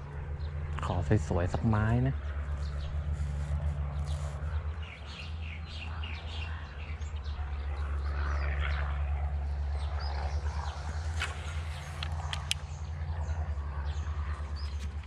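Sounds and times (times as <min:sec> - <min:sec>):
birds chirping: 0:00.0 - 0:15.0
steady low rumble: 0:00.0 - 0:15.0.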